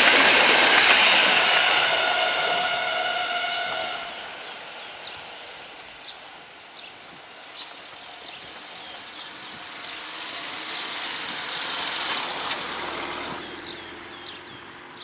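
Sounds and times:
car passing by: 9.1 - 15.0.

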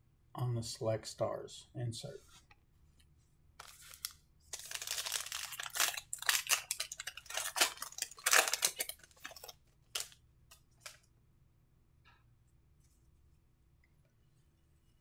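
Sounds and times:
foil wrapper crackling and tearing: 3.6 - 10.2.

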